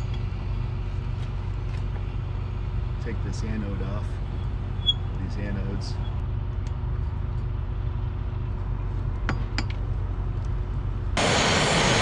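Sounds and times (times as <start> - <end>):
steady low hum: 0.0 - 12.0
propane torch flame hissing: 11.2 - 12.0.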